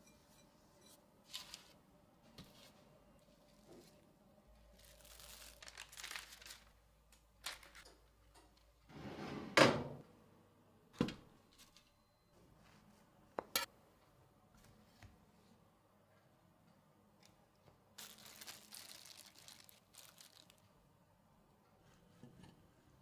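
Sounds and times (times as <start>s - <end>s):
cling film crinkling: 4.7s - 6.8s, 18.0s - 20.6s.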